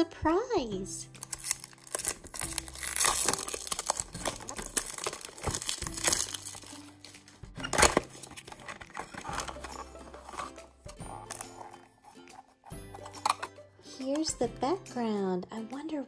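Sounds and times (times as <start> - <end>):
cardboard ripping: 1.2 - 11.9
cardboard packaging rustling: 1.2 - 13.5.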